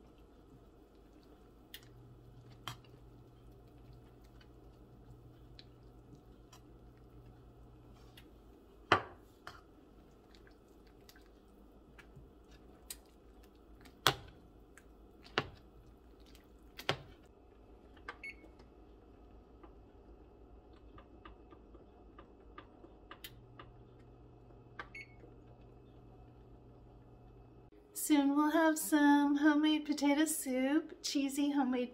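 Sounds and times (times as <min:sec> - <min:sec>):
stirring thick soup: 0:00.0 - 0:17.3.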